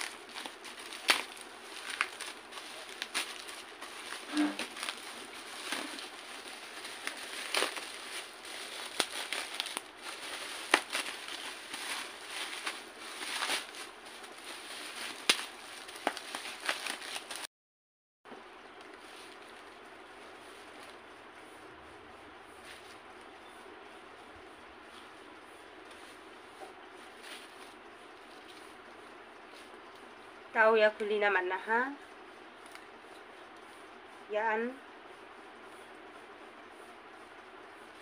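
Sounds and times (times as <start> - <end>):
bubble wrap crinkling and crackling: 0.0 - 17.5, 24.8 - 30.3, 32.1 - 33.9.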